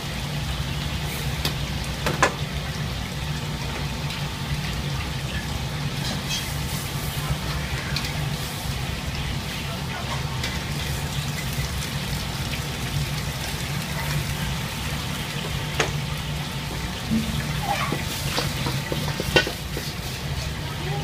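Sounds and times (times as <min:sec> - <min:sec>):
water boiling: 0:00.0 - 0:21.0
water splashing and dripping: 0:10.6 - 0:20.4
gas burner rushing: 0:13.6 - 0:20.5.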